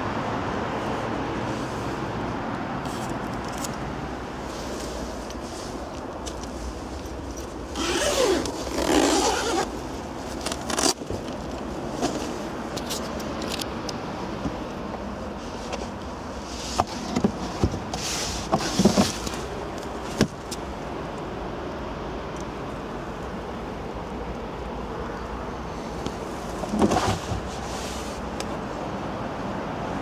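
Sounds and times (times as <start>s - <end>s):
fabric rustling and scraping: 4.4s - 13.0s, 15.4s - 20.3s, 26.3s - 28.4s.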